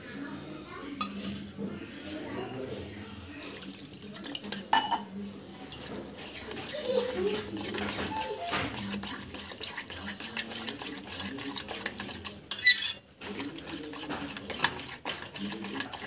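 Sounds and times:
batter mashed by hand: 5.7s - 16.0s.

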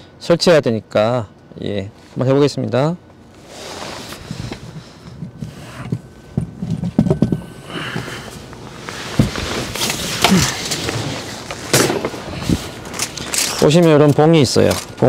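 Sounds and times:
fabric and mat rustling: 3.4s - 13.5s
knocks and thumps: 5.2s - 8.1s, 9.2s - 9.4s.

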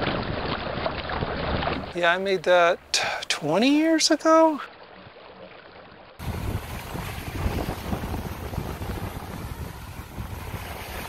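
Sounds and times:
waves washing: 0.0s - 11.0s
wind buffeting microphone: 6.2s - 11.0s.

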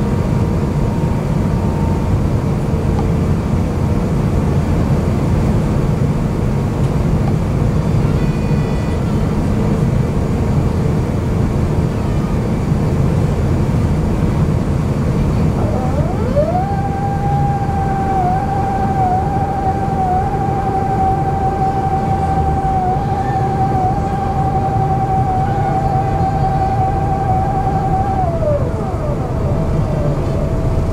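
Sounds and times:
airplane cabin rumble and hiss: 0.0s - 30.9s
rising whine: 14.8s - 30.9s.

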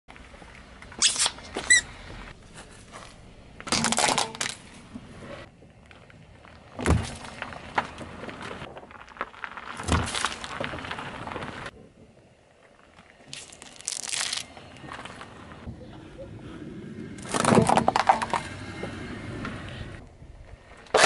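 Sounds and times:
rubber toy squeak: 1.0s - 1.9s
tyre crushing objects: 6.5s - 11.8s.

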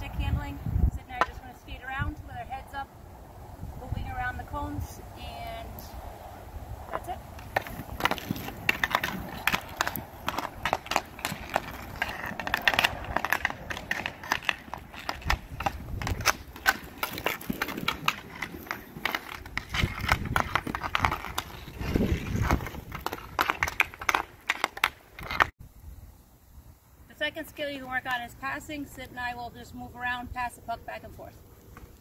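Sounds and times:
skate wheels rumbling on pavement: 6.8s - 25.5s
hockey stick clacking puck: 6.9s - 25.5s.

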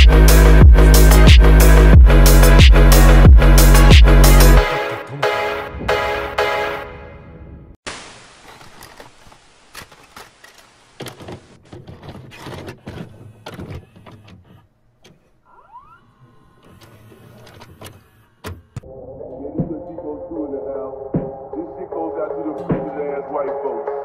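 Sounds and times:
tape hiss: 7.9s - 11.4s
mechanical clicks and clunks: 8.5s - 15.4s, 16.6s - 18.8s.

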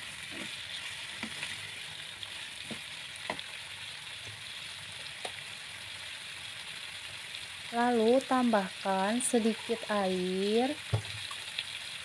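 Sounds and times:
spatula scraping a pan: 0.0s - 2.8s
chicken sizzling in a wok: 0.0s - 12.0s.

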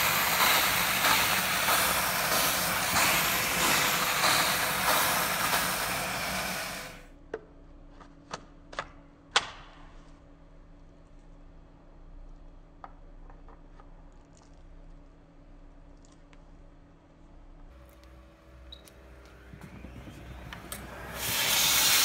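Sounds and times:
steam vacuum hissing: 0.0s - 7.0s, 19.1s - 22.0s.

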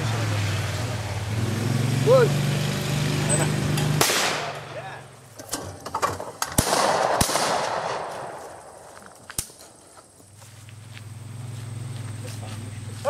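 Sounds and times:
shotgun shots echoing: 4.0s - 4.7s, 6.5s - 8.8s
faint sharp cracks: 6.4s - 9.8s.

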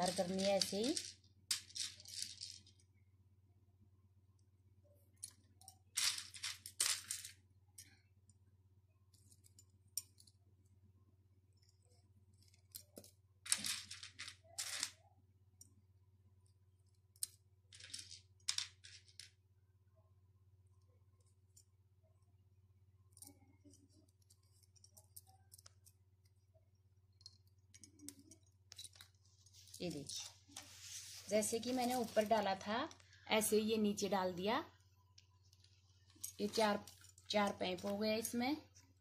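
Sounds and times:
plastic beads clicking and rustling: 0.0s - 2.9s, 5.2s - 8.0s, 11.6s - 15.0s, 16.8s - 19.4s, 23.1s - 26.4s, 27.1s - 34.5s, 35.1s - 38.4s
faint low hum: 0.0s - 39.0s.

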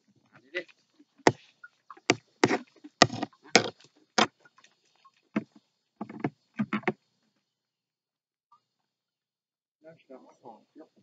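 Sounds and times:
sharp irregular knocks: 2.0s - 4.3s, 5.4s - 7.0s.

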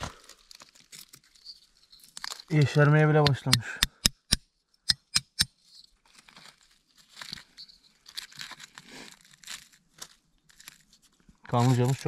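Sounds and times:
hands rustling through dry leaves: 6.1s - 12.0s.

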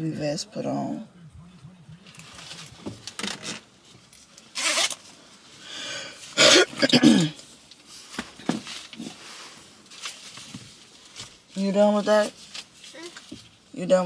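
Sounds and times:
woman coughing: 6.4s - 7.4s.

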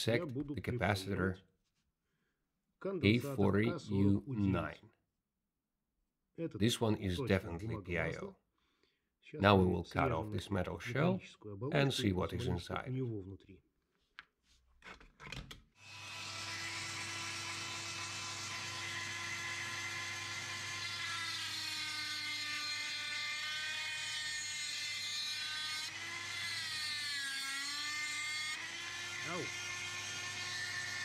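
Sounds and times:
rotary tool cutting metal: 15.8s - 31.0s.

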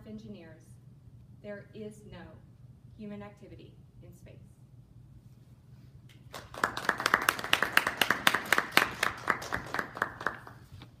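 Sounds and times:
audience clapping: 6.3s - 10.7s.

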